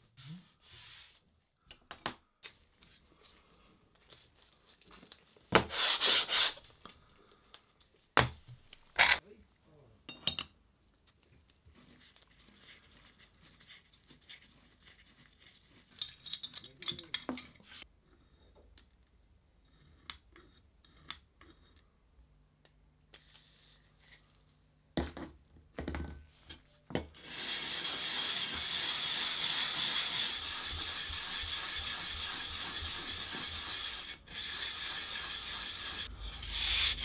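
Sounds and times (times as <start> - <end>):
plane rubbing on wet sandpaper: 5.7 - 6.6, 27.2 - 37.0.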